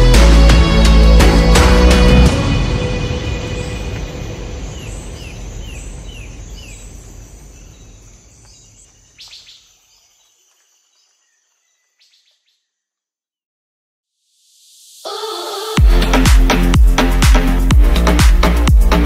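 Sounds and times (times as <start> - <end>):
background music: 0.0 - 5.0, 15.1 - 19.0.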